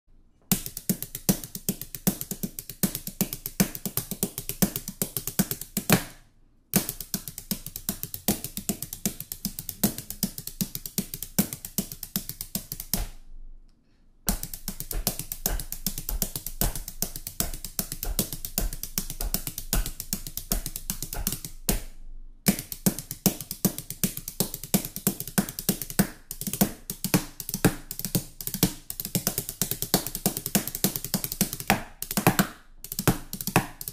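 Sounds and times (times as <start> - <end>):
drumsticks drumming on countertop: 14.3 - 21.9.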